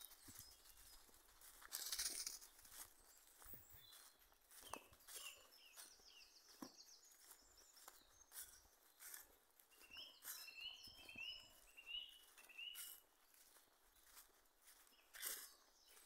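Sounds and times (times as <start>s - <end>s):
faint birdsong: 0.0s - 16.0s
footsteps in dry leaves: 0.0s - 16.0s.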